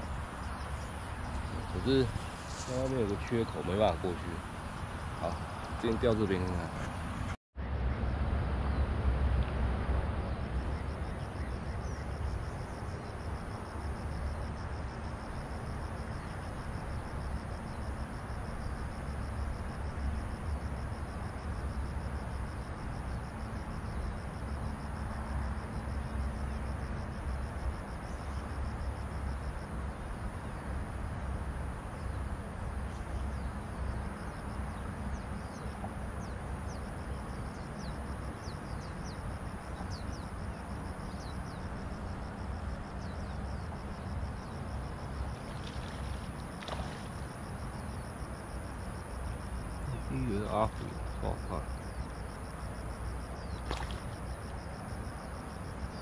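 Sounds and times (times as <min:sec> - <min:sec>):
pulsing insect trill: 0:00.0 - 0:07.3, 0:10.2 - 0:56.0
steady low rumble: 0:00.0 - 0:14.9.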